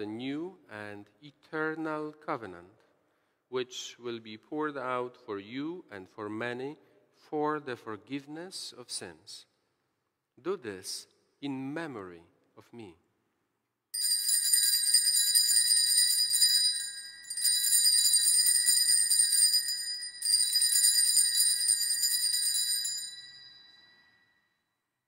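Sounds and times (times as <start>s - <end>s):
altar bells jingling: 14.0s - 24.4s.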